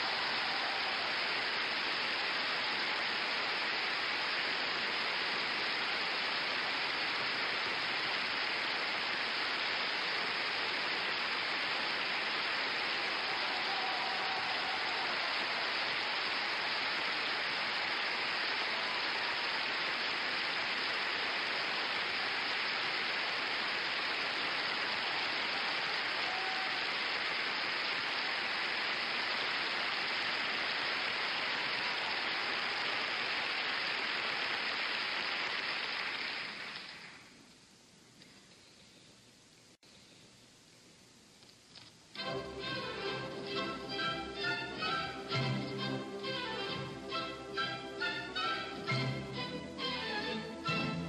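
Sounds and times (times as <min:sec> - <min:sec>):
audience applauding: 0:00.0 - 0:37.3.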